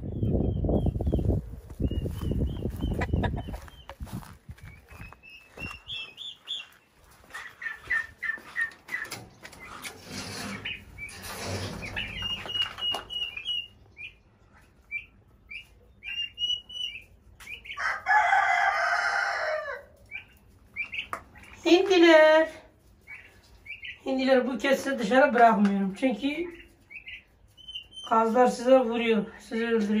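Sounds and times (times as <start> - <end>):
wind noise: 0.0 - 5.9
poults peeping: 0.0 - 30.0
rooster crowing: 17.8 - 20.0.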